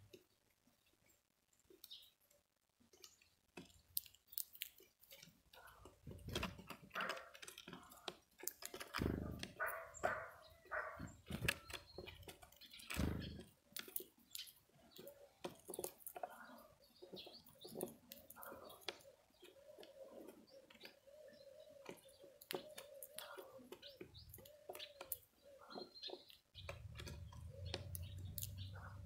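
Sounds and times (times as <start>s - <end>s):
bird cracking seeds: 2.9s - 16.7s, 17.5s - 20.1s, 21.9s - 25.3s, 26.6s - 29.0s.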